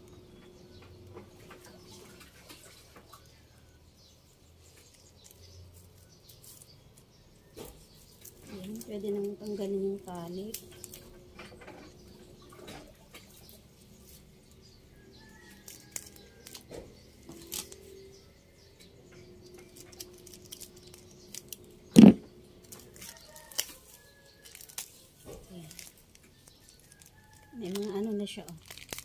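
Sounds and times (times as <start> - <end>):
clicks and rustles of plastic wrapping: 4.6 - 14.2, 15.2 - 18.0, 19.2 - 29.0
loud thump: 22.0 - 22.3.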